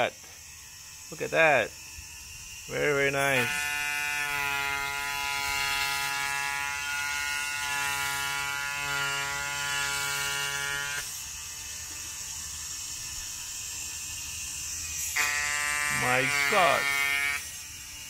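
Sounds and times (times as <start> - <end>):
needle cutter hissy buzz: 0.0 - 18.0
stepper motors whining: 10.2 - 18.0.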